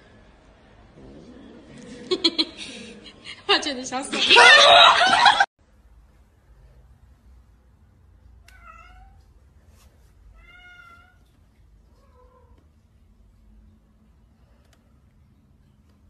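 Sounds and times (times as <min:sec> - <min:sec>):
voices and laughter: 0:01.7 - 0:05.5.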